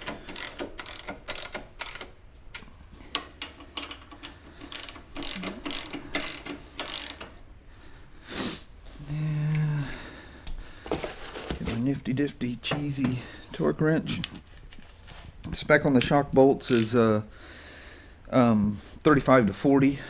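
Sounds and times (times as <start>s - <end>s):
socket ratchet clicking: 0.0s - 7.4s, 16.6s - 17.0s.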